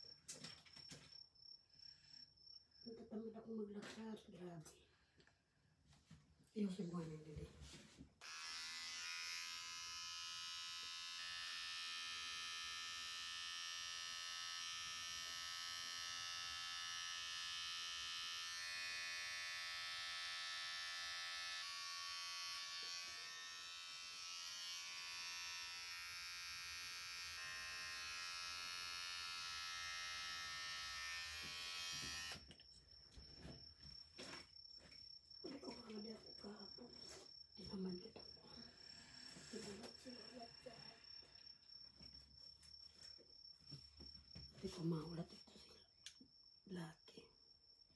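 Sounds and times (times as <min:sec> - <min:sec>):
electric hair clippers buzzing: 0:08.2 - 0:32.5.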